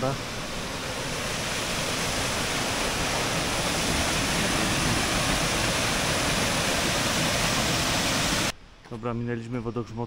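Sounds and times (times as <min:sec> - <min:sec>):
water rushing down waterfall: 0:00.0 - 0:08.5.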